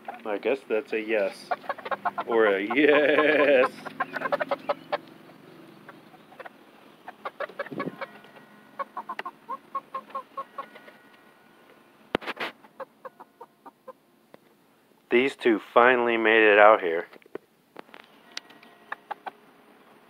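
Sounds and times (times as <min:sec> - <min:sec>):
chickens clucking: 0:00.0 - 0:14.5, 0:18.4 - 0:19.5.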